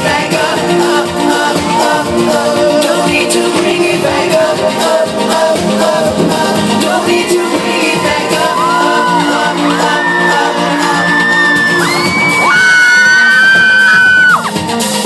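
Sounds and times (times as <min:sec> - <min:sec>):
male singer: 0:00.0 - 0:11.8
electronic pop music: 0:00.0 - 0:15.0.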